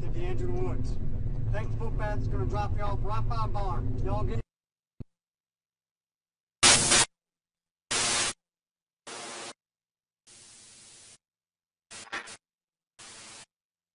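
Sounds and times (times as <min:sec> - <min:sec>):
static hiss bursts: 0:06.6 - 0:07.1, 0:07.9 - 0:08.4, 0:09.1 - 0:09.6, 0:10.3 - 0:11.2, 0:11.9 - 0:12.4, 0:13.0 - 0:13.5.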